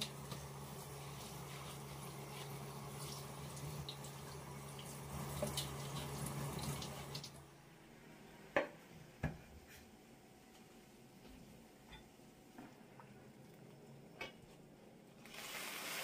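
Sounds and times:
liquid running: 0:00.0 - 0:07.4, 0:15.2 - 0:16.0.

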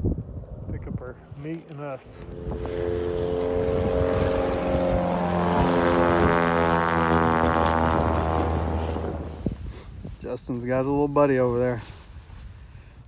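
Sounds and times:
propeller plane engine drone: 0:00.0 - 0:09.9.

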